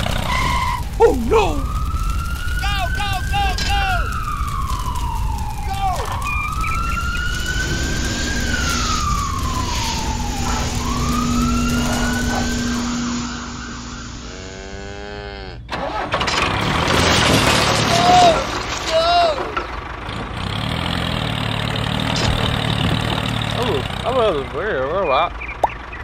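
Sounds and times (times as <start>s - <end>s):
siren wailing: 0.0s - 15.0s, 17.6s - 19.7s
rough engine-like noise: 0.0s - 26.0s.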